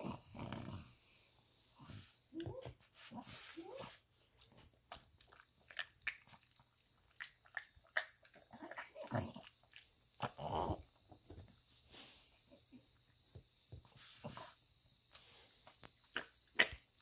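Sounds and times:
dog breathy sounds: 0:00.0 - 0:04.1
dog chewing and lip-smacking: 0:04.3 - 0:10.2.

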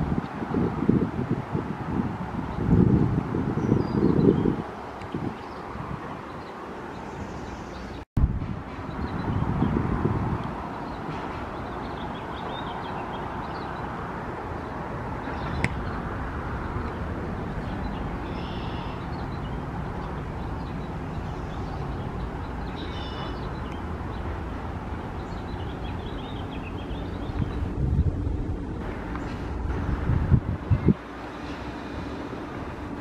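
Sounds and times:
birds chirping: 0:03.5 - 0:08.1, 0:08.7 - 0:29.9
low rumble: 0:26.8 - 0:31.0.

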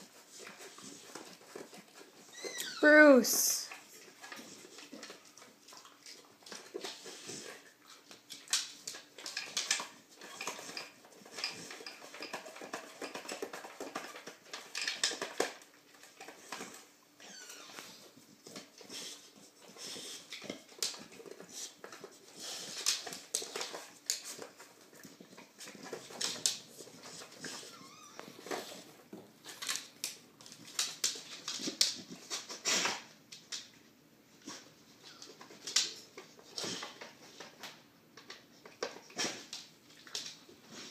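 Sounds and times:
plastic clicks and clatter: 0:08.1 - 0:16.9, 0:22.7 - 0:27.6, 0:28.2 - 0:33.7.

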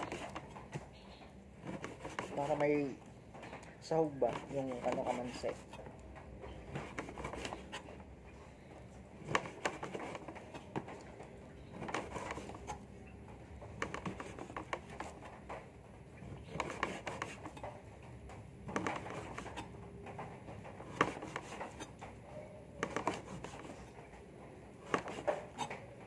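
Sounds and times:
knife and utensils on board: 0:01.6 - 0:02.6, 0:20.8 - 0:22.0, 0:24.8 - 0:25.8.

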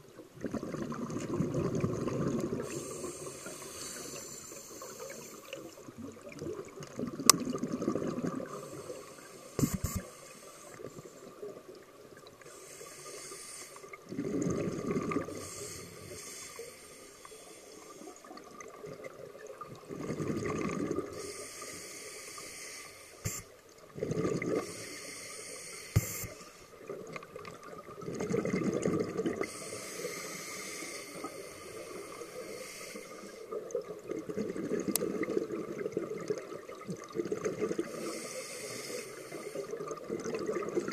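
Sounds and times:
exhaled air bubbling: 0:00.0 - 0:21.5, 0:23.2 - 0:40.9
regulator inhalation hiss: 0:02.6 - 0:05.7, 0:08.5 - 0:11.3, 0:12.5 - 0:14.0, 0:15.3 - 0:18.2, 0:21.1 - 0:23.6, 0:24.6 - 0:26.8, 0:29.4 - 0:33.5, 0:37.9 - 0:39.8.

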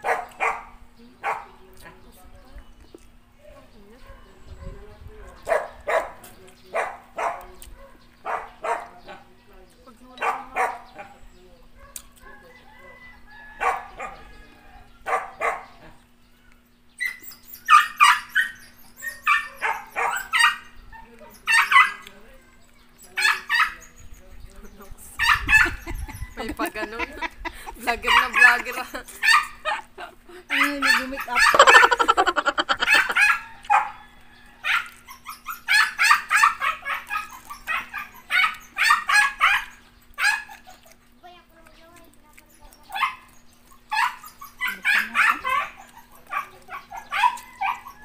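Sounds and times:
dog barking: 0:00.0 - 0:01.6, 0:04.0 - 0:09.1, 0:10.2 - 0:11.1, 0:11.8 - 0:12.4, 0:13.6 - 0:14.3, 0:15.0 - 0:15.9, 0:17.7 - 0:22.1, 0:23.2 - 0:23.8, 0:25.2 - 0:25.8, 0:28.1 - 0:29.8, 0:30.5 - 0:31.9, 0:32.7 - 0:34.0, 0:34.6 - 0:40.9, 0:42.9 - 0:48.0
people laughing: 0:25.6 - 0:30.5, 0:31.2 - 0:33.4.

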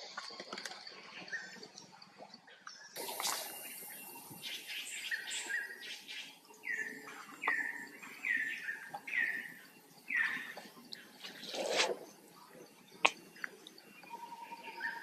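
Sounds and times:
bird calling: 0:03.2 - 0:11.9.

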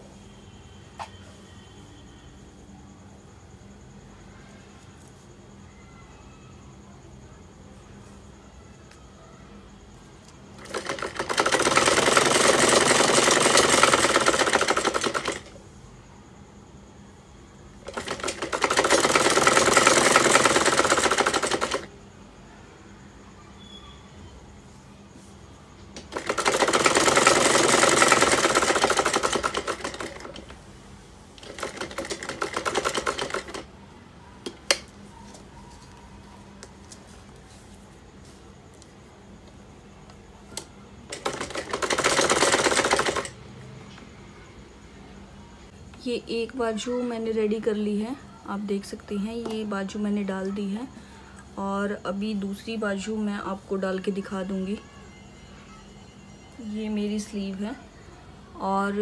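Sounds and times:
sewing machine stitching: 0:10.6 - 0:15.6, 0:17.8 - 0:21.9, 0:26.0 - 0:30.6, 0:31.4 - 0:33.7, 0:41.1 - 0:43.4.

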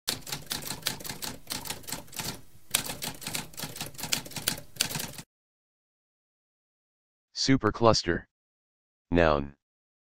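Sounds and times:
typewriter keys clacking: 0:00.1 - 0:05.2.

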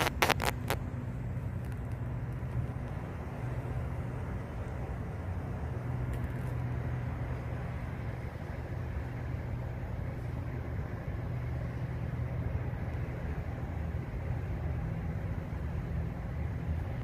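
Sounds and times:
low rumble of city traffic: 0:00.0 - 0:17.0.

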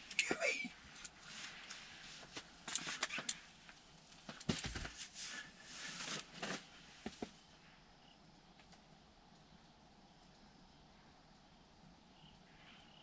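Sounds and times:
fabric rustling and clicks: 0:01.0 - 0:07.4.

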